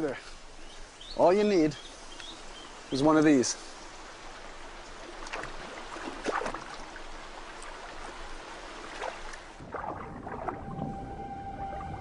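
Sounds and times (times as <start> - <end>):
stream water trickling: 0.0 - 12.0
small water splashes: 3.7 - 11.0.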